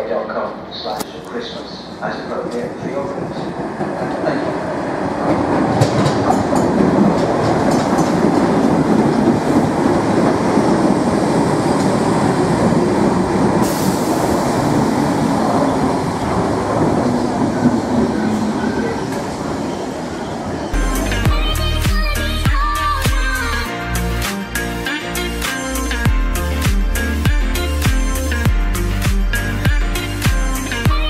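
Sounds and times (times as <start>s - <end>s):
electric train rumbling: 0.0s - 31.0s
wheels clicking over rail joints: 5.3s - 10.4s.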